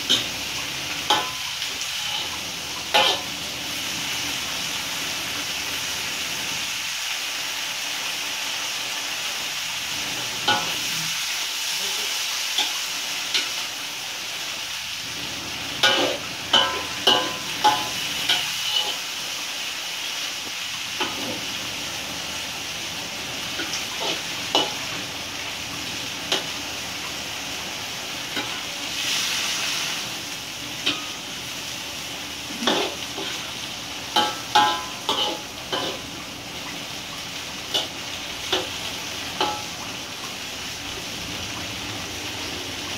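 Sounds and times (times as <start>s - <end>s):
vegetables sizzling in a wok: 0.0s - 42.9s
spatula scraping and clanking: 34.2s - 36.0s.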